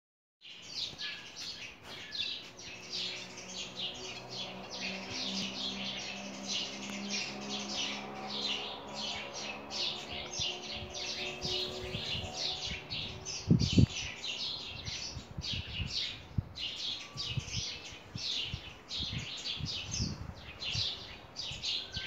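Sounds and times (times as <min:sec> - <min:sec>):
small birds chirping: 0:00.4 - 0:22.0.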